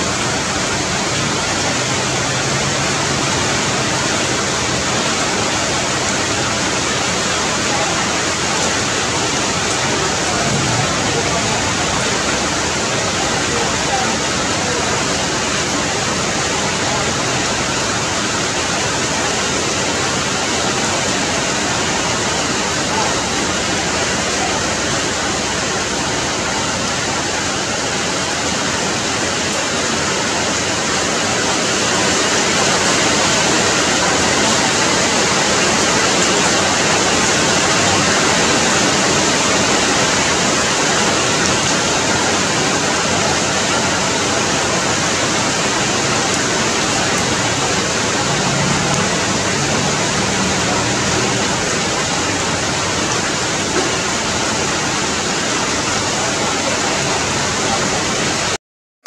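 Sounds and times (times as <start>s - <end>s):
rain falling on leaves: 0.0s - 58.6s.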